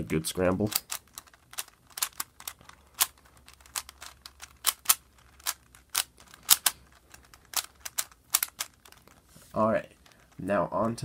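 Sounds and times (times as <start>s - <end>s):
plastic puzzle clicks: 0.6s - 9.2s.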